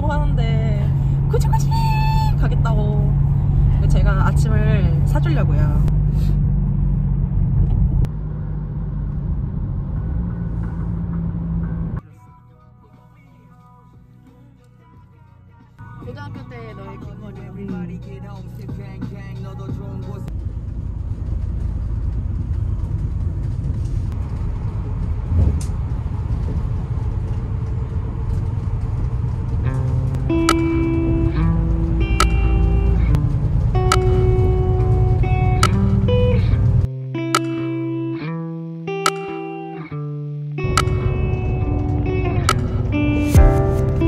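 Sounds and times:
car engine and road noise: 0:00.0 - 0:44.0
bus bump: 0:23.0 - 0:31.1, 0:33.7 - 0:36.1.

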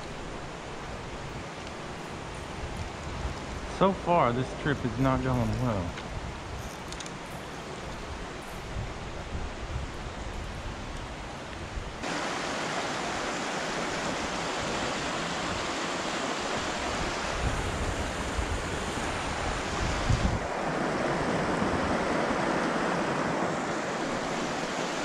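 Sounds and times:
creek water tumbling over rocks: 0:12.0 - 0:19.6.

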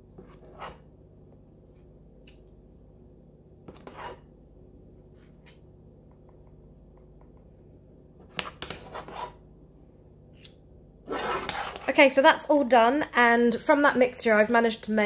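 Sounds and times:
low steady hum: 0:00.0 - 0:15.0
metal spoons scraping a pan: 0:11.1 - 0:11.9.

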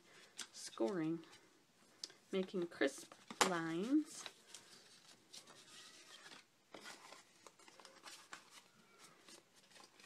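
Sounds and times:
cardstock rustling when folded: 0:02.4 - 0:10.0.

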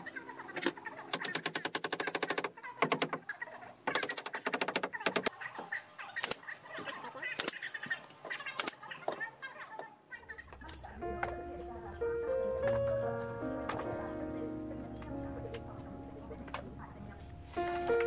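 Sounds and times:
faint birds chirping: 0:04.9 - 0:13.2.

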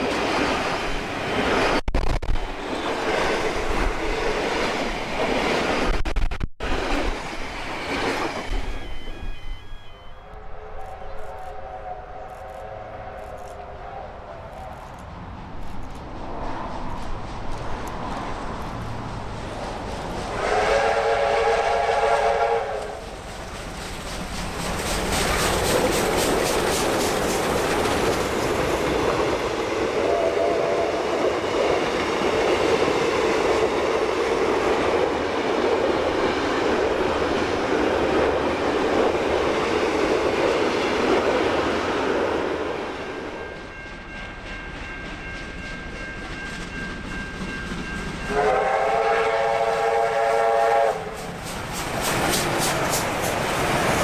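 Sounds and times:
train rushing past: 0:00.0 - 0:54.0
steam locomotive beats: 0:16.0 - 0:54.0
steam whistle blast: 0:20.3 - 0:23.0, 0:48.3 - 0:51.2.

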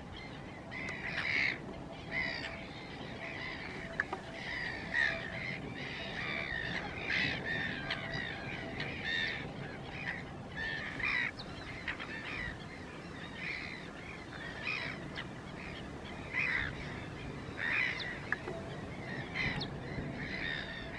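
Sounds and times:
flock of flamingos calling: 0:00.0 - 0:20.9.

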